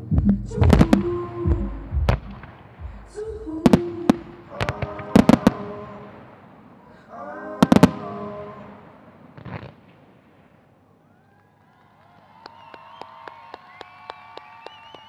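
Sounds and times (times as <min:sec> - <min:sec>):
fireworks bursting: 0:00.0 - 0:06.9, 0:07.6 - 0:10.8.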